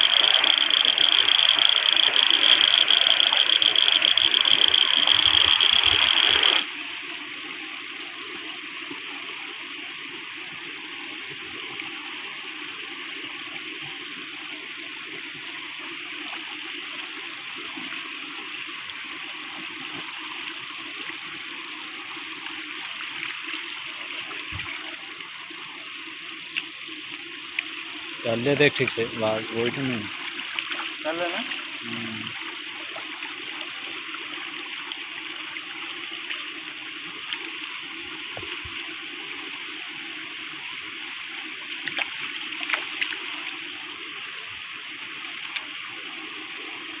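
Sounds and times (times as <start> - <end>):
hiss with high whine: 0.0 - 7.0
shallow water flowing: 0.0 - 47.0.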